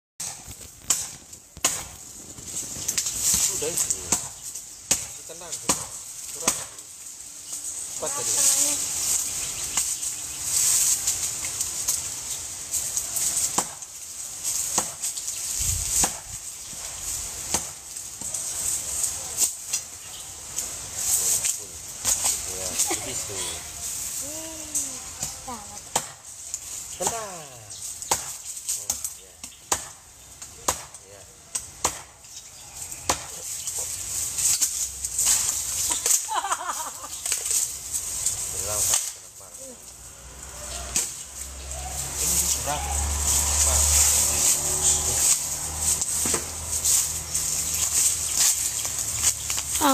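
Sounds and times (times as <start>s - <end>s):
axe chopping wood: 0.2s - 2.0s, 4.1s - 6.8s, 13.5s - 13.9s, 14.7s - 15.1s, 16.0s - 16.3s, 17.4s - 18.3s, 25.2s - 26.2s, 28.0s - 28.4s, 29.4s - 30.0s, 30.6s - 32.2s, 33.0s - 33.4s, 46.2s - 46.6s
dry branches crackling: 0.2s - 49.9s
steady high hiss: 0.3s - 29.5s, 32.8s - 49.9s
sharp wood knock: 4.9s - 6.8s, 14.7s - 15.0s, 16.0s - 16.2s, 28.0s - 28.4s, 29.7s - 30.0s, 30.6s - 31.0s, 31.8s - 32.2s, 33.1s - 33.4s.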